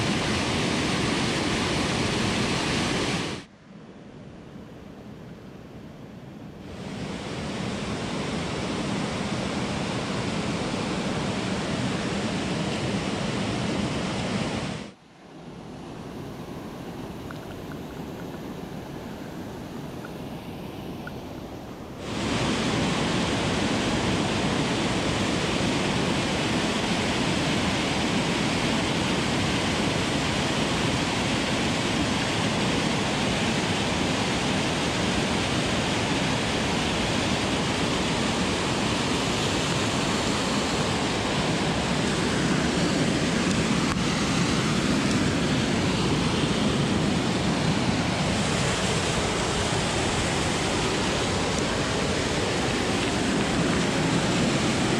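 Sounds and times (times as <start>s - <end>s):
creek water rushing: 0.0s - 3.5s, 6.6s - 54.9s.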